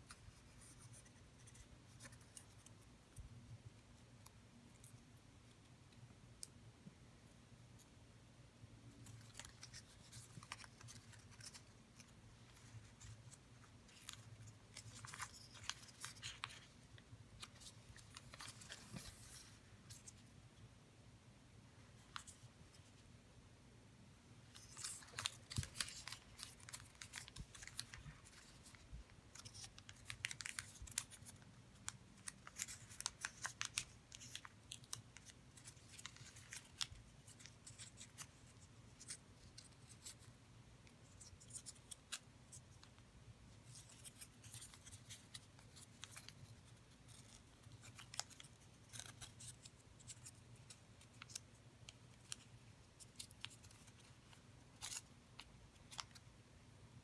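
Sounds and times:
paper being folded and creased: 0:09.0 - 0:20.2, 0:24.4 - 0:40.3, 0:43.6 - 0:56.2.

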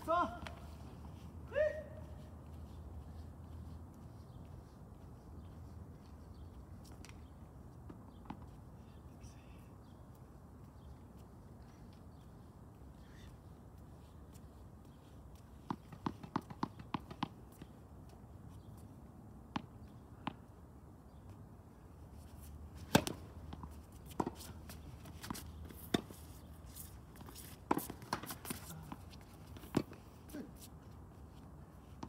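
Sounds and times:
tennis balls bouncing and struck: 0:15.6 - 0:17.8, 0:22.8 - 0:30.0.

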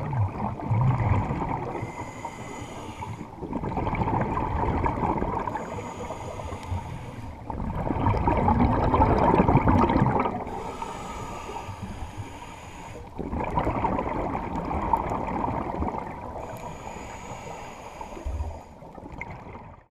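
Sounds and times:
exhaled bubbles gurgling: 0:00.0 - 0:19.9
regulator inhale hiss: 0:01.7 - 0:03.4, 0:05.5 - 0:07.5, 0:10.5 - 0:13.2, 0:16.4 - 0:18.9.

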